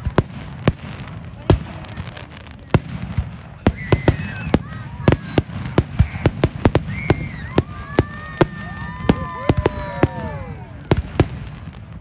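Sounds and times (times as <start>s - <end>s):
fireworks banging: 0.0s - 12.0s
voices calling out: 3.6s - 11.3s.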